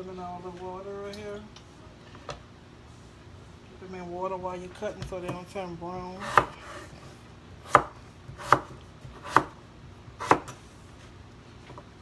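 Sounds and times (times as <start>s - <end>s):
knife chopping on wooden board: 6.2s - 6.8s, 7.7s - 9.6s, 10.2s - 10.6s.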